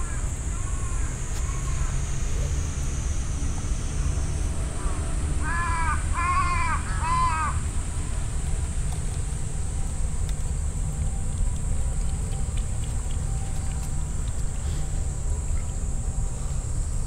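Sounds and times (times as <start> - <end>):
steady low rumble: 0.0 - 17.0
crow cawing: 4.8 - 7.6.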